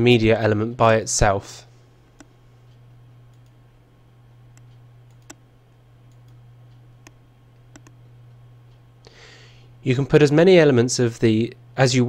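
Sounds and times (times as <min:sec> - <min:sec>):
steady low hum: 0:00.0 - 0:12.0
computer mouse clicking: 0:02.2 - 0:03.6, 0:04.5 - 0:05.4, 0:06.1 - 0:08.0.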